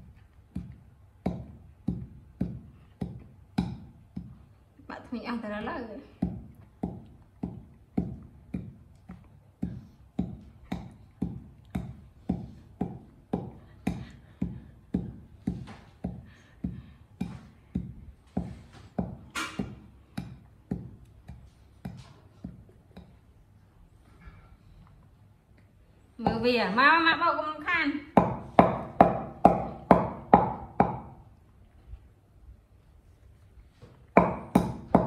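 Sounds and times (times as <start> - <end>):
pestle pounding in wooden mortar: 0.0 - 4.5, 6.0 - 23.3, 28.1 - 31.3, 34.1 - 35.0.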